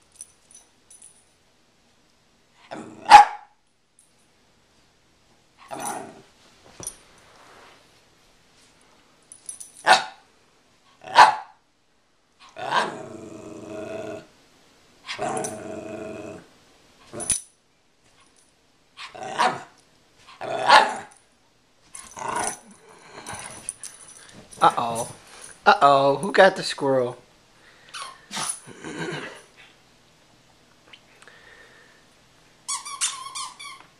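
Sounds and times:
dogs growling playfully: 0:02.7 - 0:03.1, 0:05.6 - 0:06.3, 0:12.5 - 0:14.3, 0:15.1 - 0:16.5, 0:19.0 - 0:19.7, 0:20.3 - 0:21.1, 0:22.0 - 0:23.9, 0:28.3 - 0:29.5
dogs barking: 0:03.1 - 0:03.5, 0:11.1 - 0:11.5.

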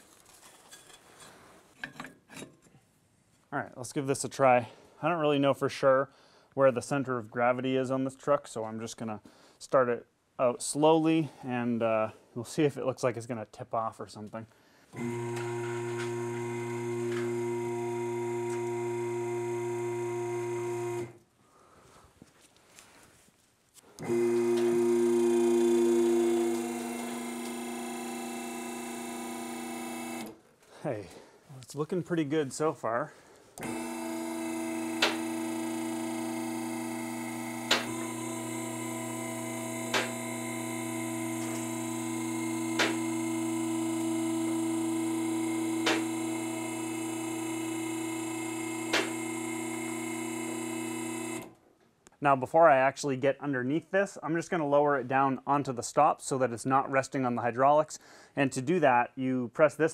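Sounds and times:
hydraulic lift motor humming: 0:15.0 - 0:21.2, 0:24.0 - 0:30.4, 0:33.6 - 0:51.6.

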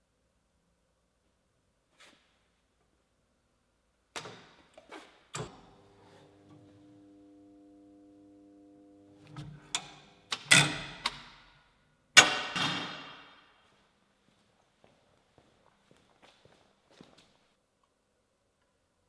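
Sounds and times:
faint steady tone: 0:05.6 - 0:10.3.

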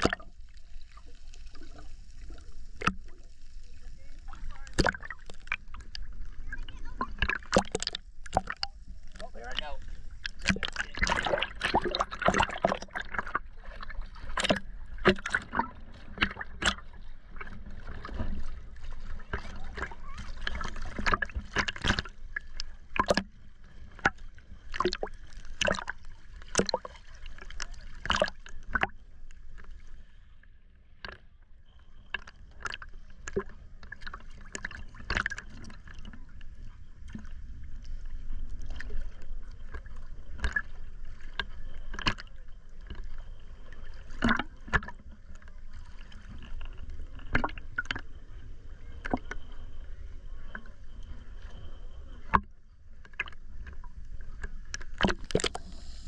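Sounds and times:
sea water splashing against camera: 0:00.0 - 0:30.1, 0:31.0 - 0:56.0
low water wash: 0:00.0 - 0:30.3.

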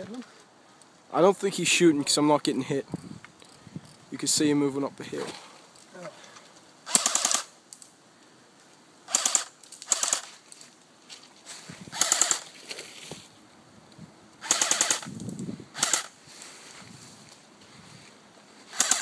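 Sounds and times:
airsoft gun full-auto bursts: 0:06.8 - 0:07.5, 0:09.1 - 0:10.3, 0:11.9 - 0:12.5, 0:14.4 - 0:15.1, 0:15.7 - 0:16.2, 0:18.7 - 0:19.0.

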